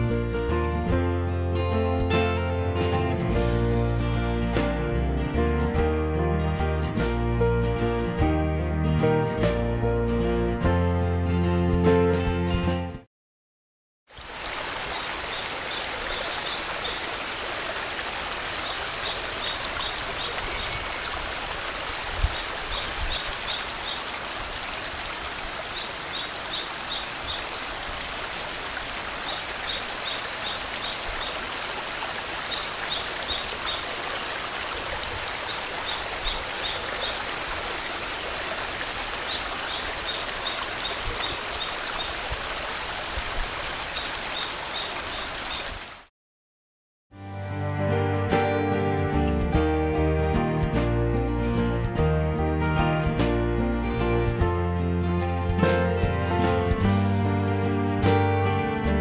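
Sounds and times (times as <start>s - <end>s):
stream rushing over rocks: 14.1s - 46.1s.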